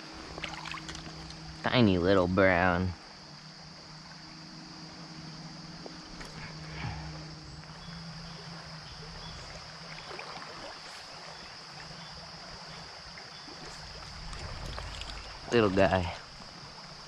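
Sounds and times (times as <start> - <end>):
creek water rushing over gravel: 0.0 - 4.0, 8.4 - 17.0.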